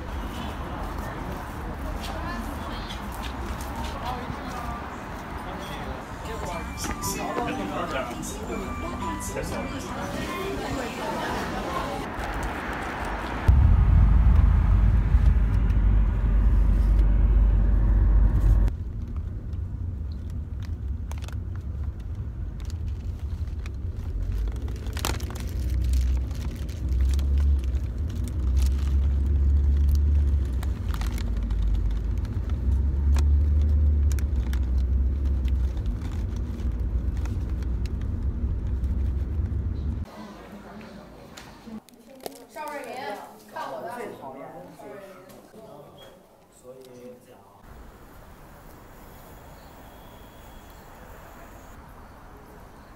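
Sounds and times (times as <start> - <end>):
car road rumble: 11.9 - 40.1
paper bag crinkling: 22.7 - 32.4.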